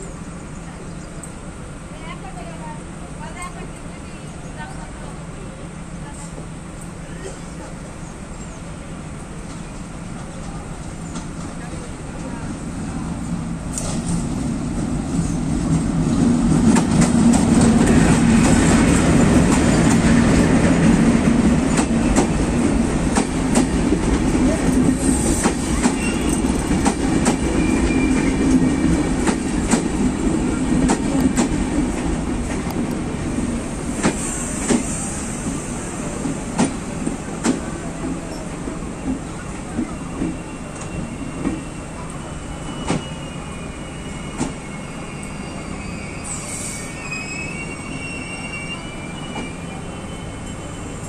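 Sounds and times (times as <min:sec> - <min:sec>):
diesel locomotive engine: 0:00.0 - 0:51.0
train wheels clicking over rail joints: 0:13.7 - 0:33.0, 0:33.9 - 0:41.6.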